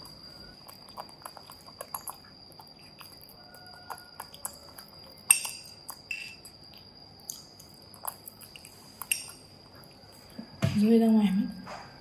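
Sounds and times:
metal fork clinking on ceramic bowl: 5.3s - 6.4s.

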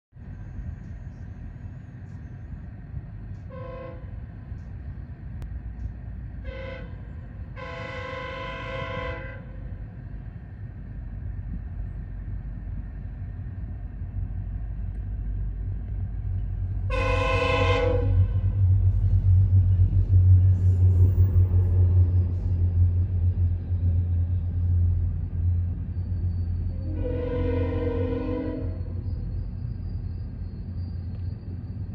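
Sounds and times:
approaching train rumble: 0.1s - 31.9s
locomotive air horn: 3.5s - 4.2s, 6.4s - 9.7s, 16.9s - 18.6s, 26.7s - 29.0s.

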